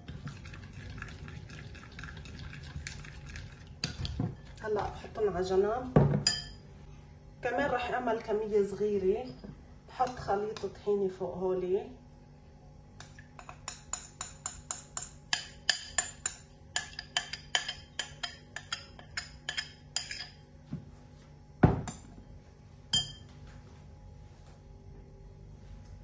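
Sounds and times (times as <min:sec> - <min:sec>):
metal spoon clinking on glass bowl: 0:06.2 - 0:06.6, 0:13.0 - 0:20.4, 0:22.9 - 0:23.3.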